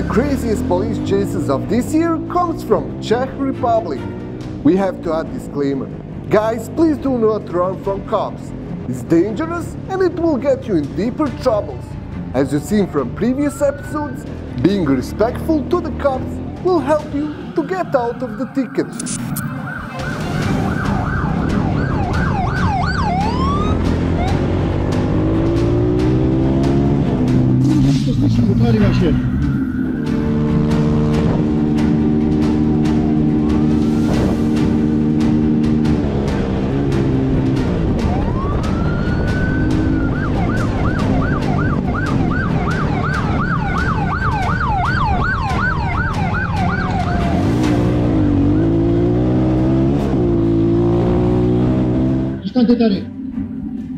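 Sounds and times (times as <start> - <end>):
police siren yelping: 13.3 - 14.3, 16.5 - 24.5, 29.1 - 30.5, 37.8 - 47.4.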